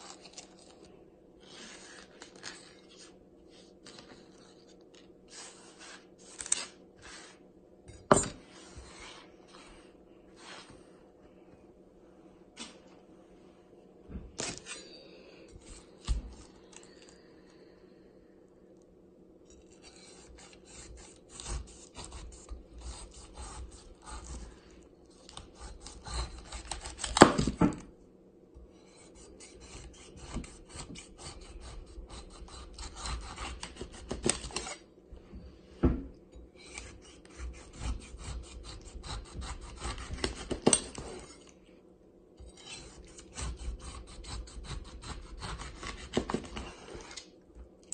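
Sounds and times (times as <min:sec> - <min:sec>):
knife sawing through pineapple: 0:19.8 - 0:24.6, 0:25.3 - 0:27.2, 0:28.8 - 0:34.8, 0:36.6 - 0:41.4, 0:42.5 - 0:47.2.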